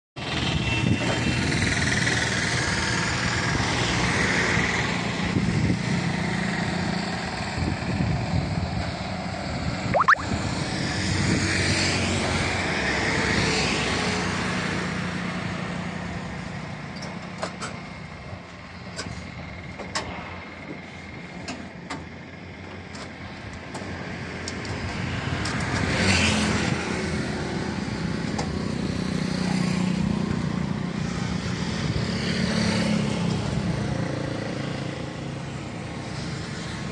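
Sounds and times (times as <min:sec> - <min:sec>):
road traffic passing: 0:00.2 - 0:36.9
steady traffic hum: 0:00.2 - 0:36.9.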